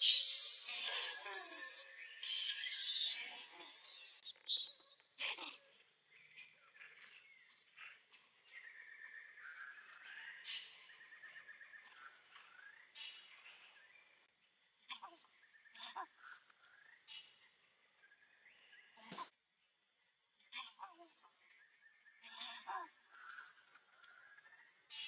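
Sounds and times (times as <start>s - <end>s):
high chirping animal calls: 0.0s - 5.5s.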